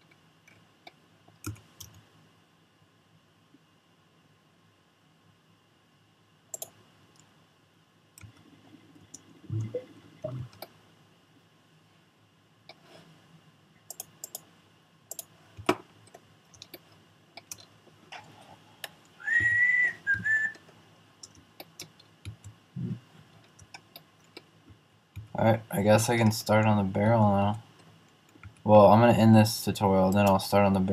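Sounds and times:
mouse and keyboard clicks: 6.5 - 7.3, 13.9 - 14.5, 15.1 - 16.8
whistle-like tone: 19.2 - 20.6.

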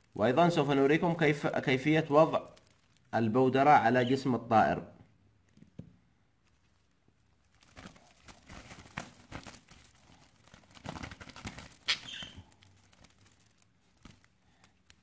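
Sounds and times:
short high bird squeak: 11.9 - 12.5.

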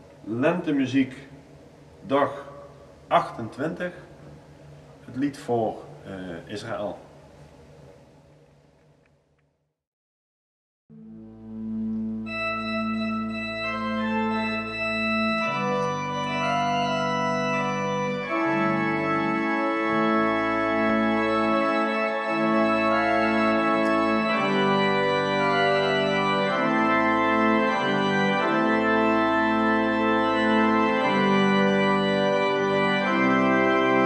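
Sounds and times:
pipe organ chords: 10.9 - 34.0.

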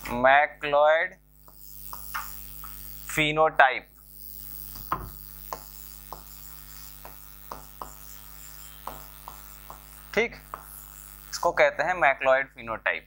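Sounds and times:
pen tapping on whiteboard screen: 1.4 - 2.8, 4.7 - 10.8.

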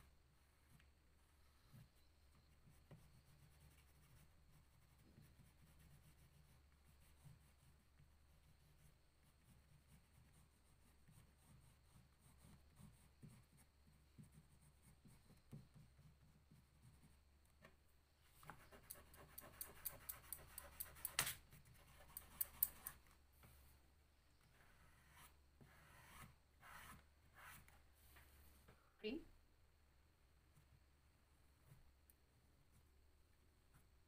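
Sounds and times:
crayon strokes on paper: 0.7 - 17.2, 18.4 - 23.0, 24.6 - 27.8
fingertips rubbing crayon on paper: 1.6 - 17.2, 18.4 - 23.0, 24.8 - 27.7.

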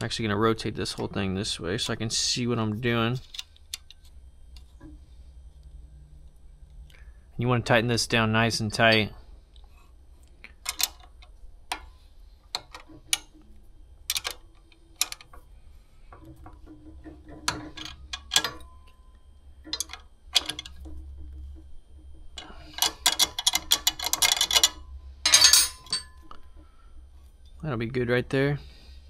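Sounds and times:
metal clatter: 19.6 - 26.4.

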